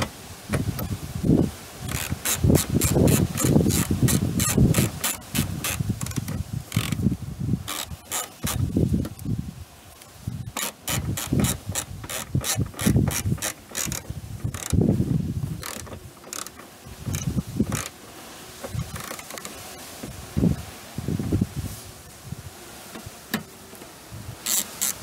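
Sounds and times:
ratchet wrench clicking: 1.9 - 7.0, 10.5 - 14.8, 15.6 - 17.9, 24.5 - 25.0.

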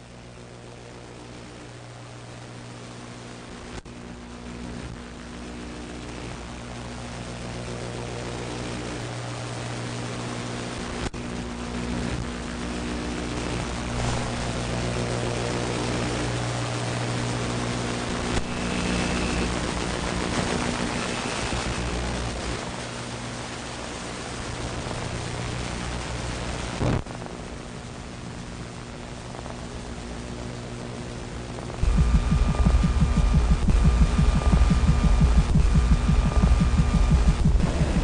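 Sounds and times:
low drone hum: 31.7 - 38.0.

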